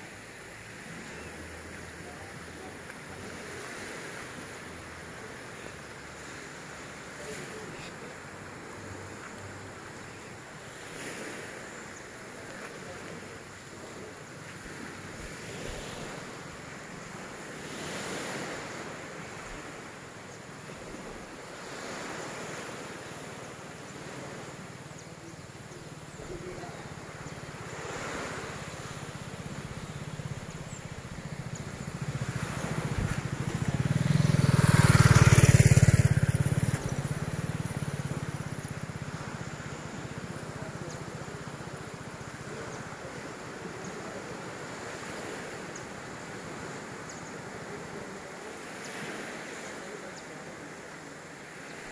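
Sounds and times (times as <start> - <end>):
sea waves washing ashore: 0.0 - 51.9
wind on microphone: 27.8 - 39.2.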